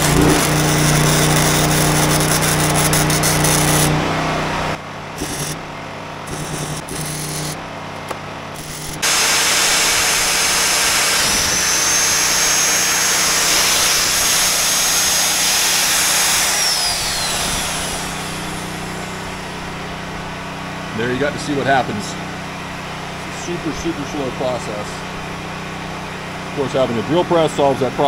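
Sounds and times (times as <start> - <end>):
magnetic drill cutting steel: 0.0 - 4.0, 5.2 - 5.6, 6.3 - 7.6, 8.6 - 19.5
high whine: 0.0 - 7.6, 8.5 - 25.3.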